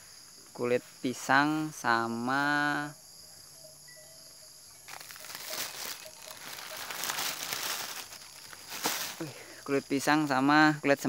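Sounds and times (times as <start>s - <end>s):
insects chirping: 0.0s - 11.0s
plastic bag rustling: 4.9s - 9.5s.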